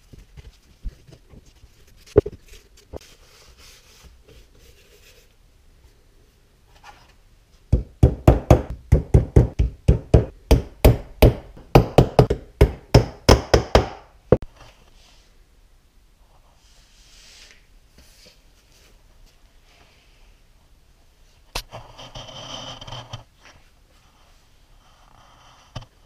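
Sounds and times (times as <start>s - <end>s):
hammer striking on workbench: 7.8s - 14.1s.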